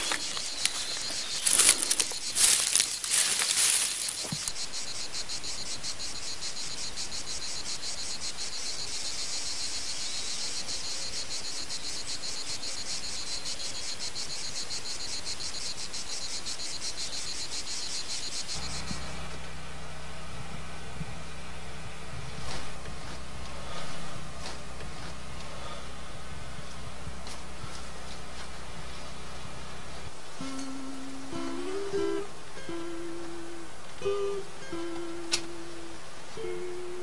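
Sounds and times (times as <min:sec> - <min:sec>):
footsteps through dry grass: 0:00.0 - 0:06.4
insects chirring: 0:00.0 - 0:19.2, 0:29.9 - 0:37.0
low hum: 0:18.4 - 0:37.0.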